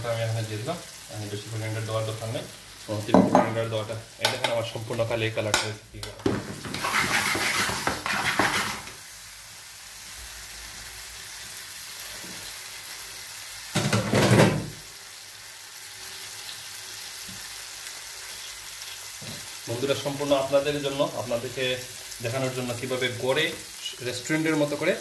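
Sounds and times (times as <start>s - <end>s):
food sizzling in a frying pan: 0.0s - 25.0s
spatula scraping a pan: 6.6s - 9.0s.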